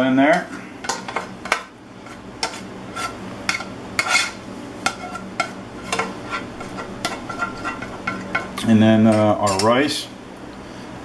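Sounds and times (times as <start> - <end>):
plastic spoon scraping a pan: 0.3 - 8.5.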